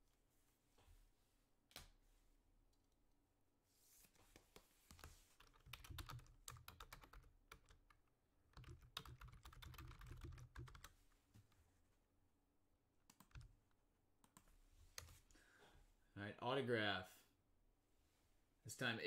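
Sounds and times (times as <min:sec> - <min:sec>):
typing on computer keyboard: 0:05.4 - 0:10.9, 0:13.1 - 0:13.5.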